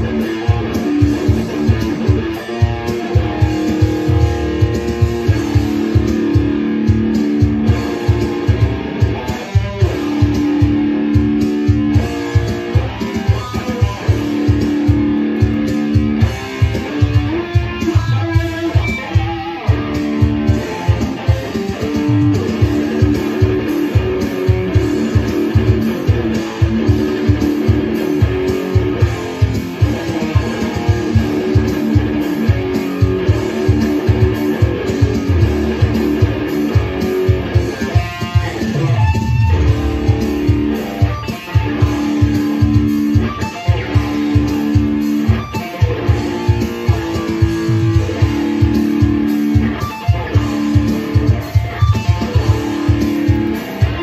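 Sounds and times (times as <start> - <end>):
electric guitar chords: 0.0 - 54.0
low beat pulse: 39.2 - 54.0.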